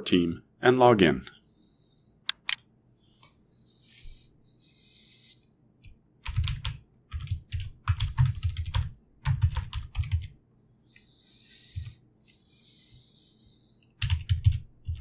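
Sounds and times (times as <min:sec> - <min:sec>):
typing on computer keyboard: 0:06.2 - 0:10.4, 0:14.0 - 0:15.0.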